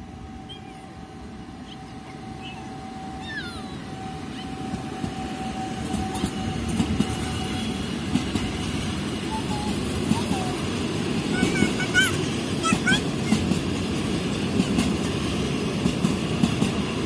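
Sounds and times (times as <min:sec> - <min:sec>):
train rumble: 0:00.0 - 0:17.0
birds chirping: 0:00.4 - 0:04.8.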